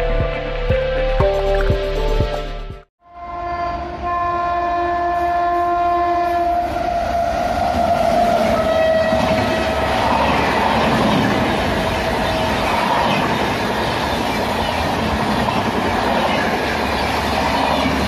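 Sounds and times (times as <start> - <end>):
train horn blast: 3.0 - 10.0.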